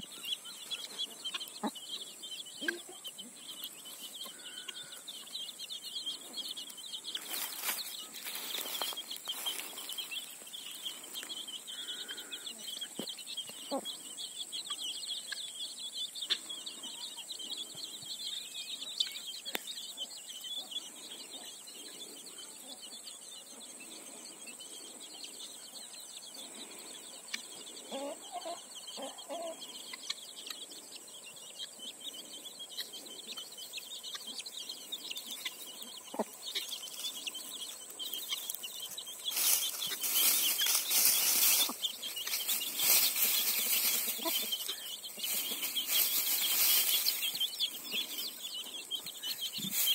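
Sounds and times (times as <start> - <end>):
hen clucking: 0.0 - 5.3, 10.7 - 14.0, 27.2 - 30.6, 32.7 - 49.9
chicks peeping: 0.0 - 49.9.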